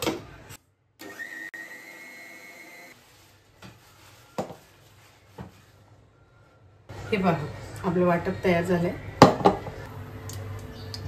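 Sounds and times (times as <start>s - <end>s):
mixer grinder whining: 1.0s - 3.0s.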